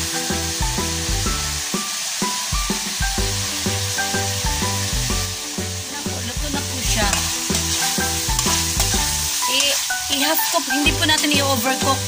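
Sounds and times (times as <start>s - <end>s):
food sizzling in a wok: 0.0s - 12.0s
upbeat background music: 0.0s - 12.0s
metal spatula scraping wok: 6.6s - 12.0s.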